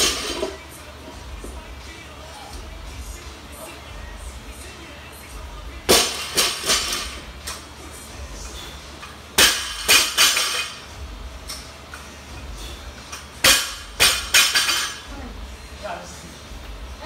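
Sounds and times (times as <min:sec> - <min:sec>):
barbell crashing onto rubber mats: 0:05.9 - 0:07.2, 0:09.4 - 0:10.7, 0:13.4 - 0:15.0.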